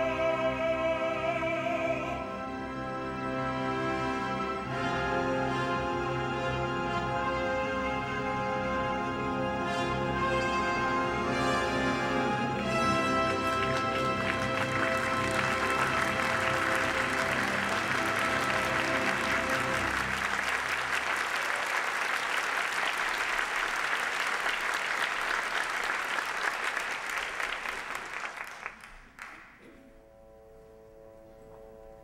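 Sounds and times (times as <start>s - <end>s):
soft orchestral music: 0.0s - 27.9s, 29.0s - 32.0s
orchestra holding closing chord: 3.0s - 21.4s
audience applause: 12.6s - 29.6s.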